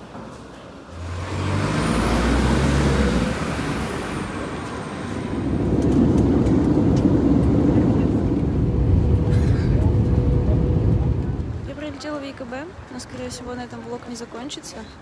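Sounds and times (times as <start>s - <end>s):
vehicle engine pulling away: 0.9s - 11.7s
airliner engines roaring in cabin: 0.9s - 12.1s
high whine: 3.4s - 11.8s.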